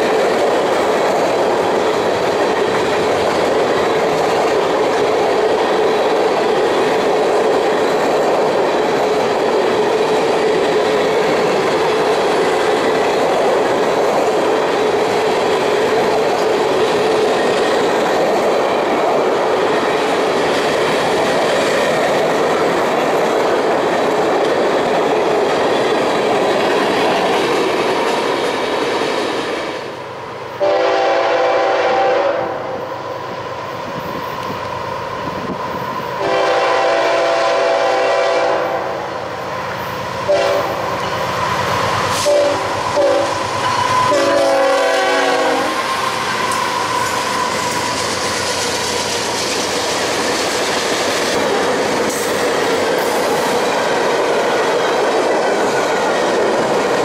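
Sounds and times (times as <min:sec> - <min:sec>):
freight train wheels clickety-clack: 0:00.0 - 0:57.0
locomotive air horn: 0:30.6 - 0:32.8, 0:36.2 - 0:39.0, 0:40.3 - 0:40.8, 0:42.1 - 0:45.8.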